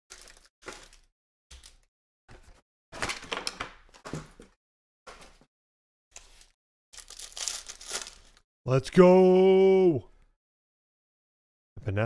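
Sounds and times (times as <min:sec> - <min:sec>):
foil wrappers crinkling and tearing: 0:00.1 - 0:01.9, 0:06.2 - 0:08.4.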